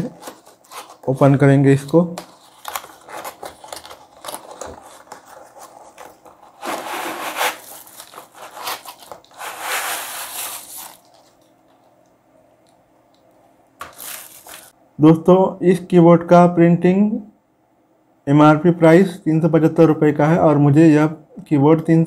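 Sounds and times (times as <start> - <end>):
cardboard scraping: 0.0 - 11.4, 13.8 - 14.7
plastic crinkling: 0.0 - 11.9, 13.8 - 14.7.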